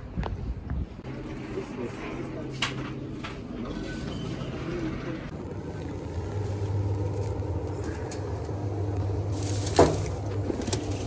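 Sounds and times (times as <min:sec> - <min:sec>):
low hum of shop ambience: 0:00.0 - 0:11.0
plastic bag rustling: 0:05.3 - 0:11.0.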